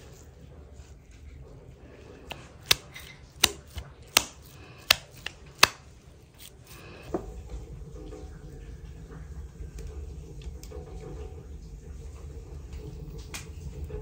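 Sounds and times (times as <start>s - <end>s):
wet slaps of raw meat: 2.3s - 5.8s.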